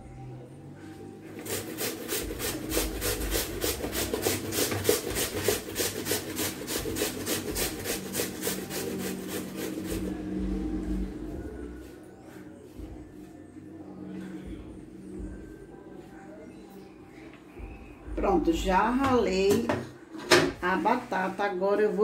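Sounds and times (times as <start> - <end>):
potato rasping on a grater: 1.4 - 10.1.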